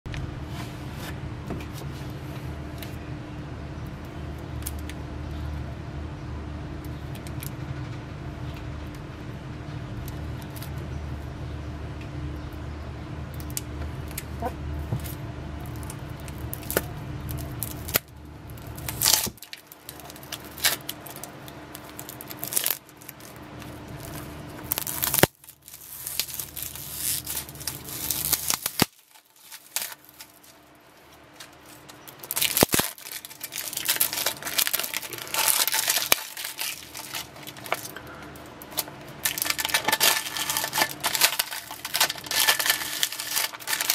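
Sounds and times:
low steady hum: 0:00.1 - 0:43.9
plastic shrink-wrap crinkling: 0:15.0 - 0:43.9.

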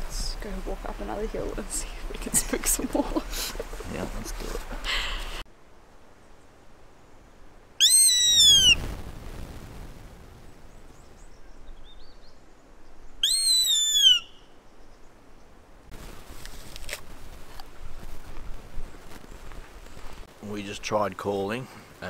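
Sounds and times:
deer call squealing bleat: 0:07.8 - 0:08.8.

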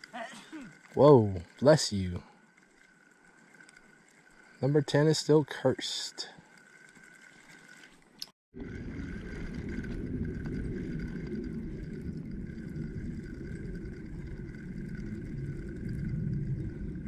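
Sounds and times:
wind buffeting microphone: 0:08.6 - 0:17.0.

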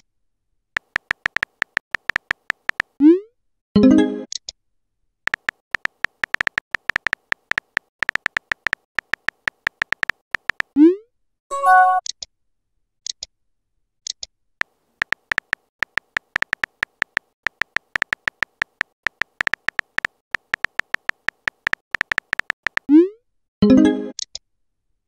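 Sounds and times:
phone keyboard key clicks: 0:00.8 - 0:03.0, 0:05.3 - 0:10.8, 0:15.0 - 0:22.9.

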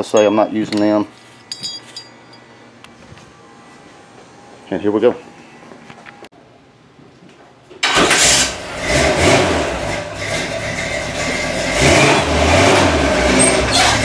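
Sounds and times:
truck engine starting and running: 0:07.8 - 0:14.0.

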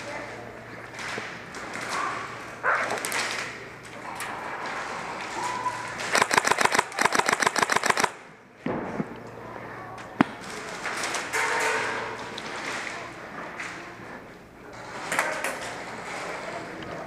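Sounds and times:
airsoft gun full-auto burst: 0:06.1 - 0:08.2.

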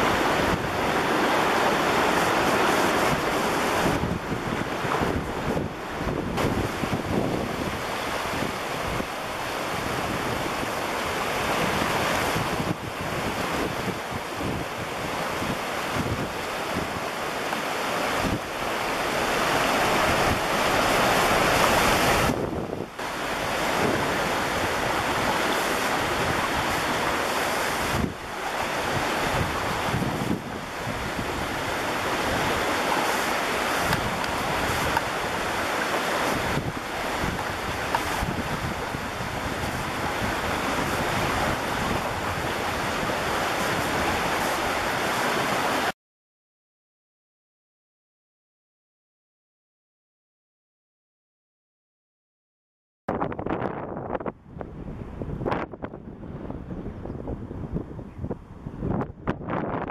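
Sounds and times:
wind buffeting microphone: 0:00.0 - 0:45.6, 0:53.1 - 0:59.9
water rushing through weir gates: 0:00.0 - 0:45.9.

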